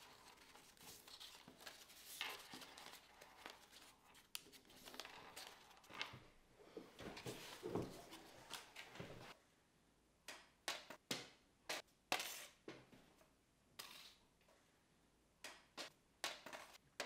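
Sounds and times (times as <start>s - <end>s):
paper rustling: 0.0s - 6.2s.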